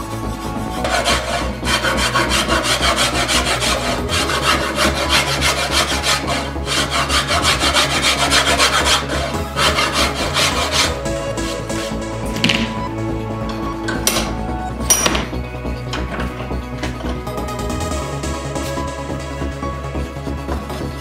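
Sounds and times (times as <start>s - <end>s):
background music: 0.0s - 21.0s
hand rasp on wood: 0.7s - 12.1s.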